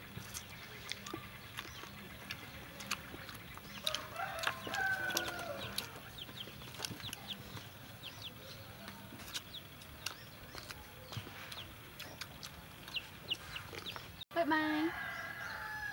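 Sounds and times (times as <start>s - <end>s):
small clicks of picking food: 0.1s - 7.7s, 8.8s - 13.0s
rooster crowing: 3.8s - 6.0s, 14.6s - 15.9s.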